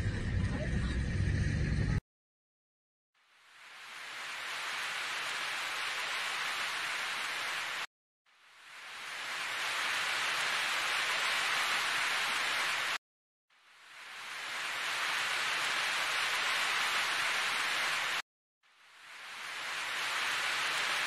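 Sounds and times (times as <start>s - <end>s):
steady hiss: 3.4s - 7.8s, 8.4s - 13.0s, 13.6s - 21.0s.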